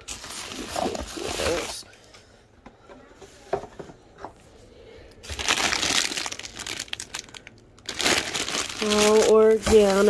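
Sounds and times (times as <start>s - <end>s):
plastic packaging crinkling: 0.0s - 1.8s, 5.2s - 10.0s.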